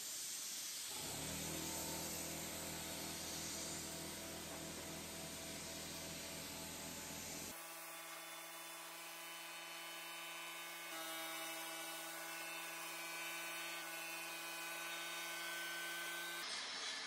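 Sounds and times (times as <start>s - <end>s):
spray gun hissing: 0.0s - 7.6s
whining hum: 1.0s - 7.6s.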